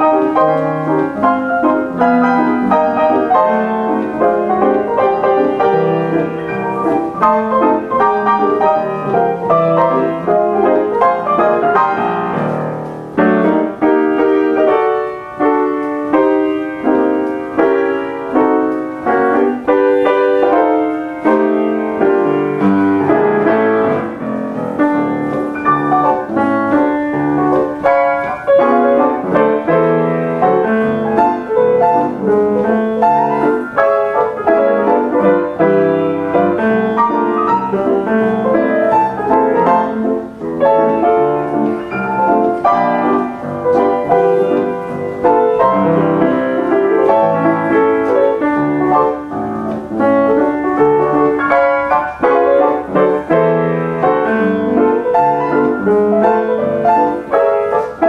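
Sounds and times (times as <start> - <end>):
player piano playing songs: 0.0 - 58.0.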